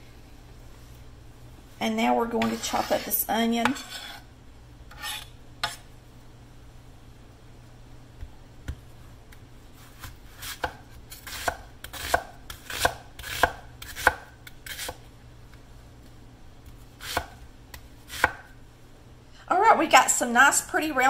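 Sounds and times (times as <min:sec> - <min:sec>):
knife slicing onion: 0:02.4 - 0:04.3, 0:04.9 - 0:05.9, 0:09.8 - 0:15.0, 0:16.6 - 0:18.5.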